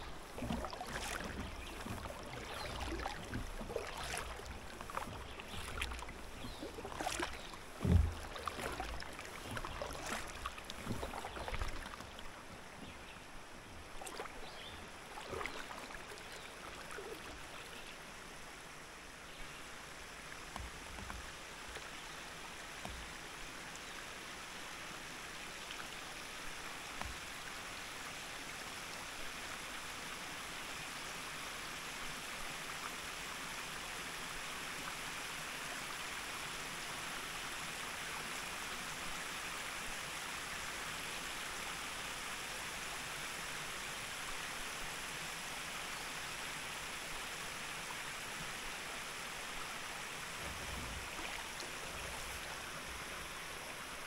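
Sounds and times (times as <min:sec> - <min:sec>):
soft low bumps: 0:00.0 - 0:12.2
river water rushing: 0:00.0 - 0:30.0, 0:38.0 - 0:54.0.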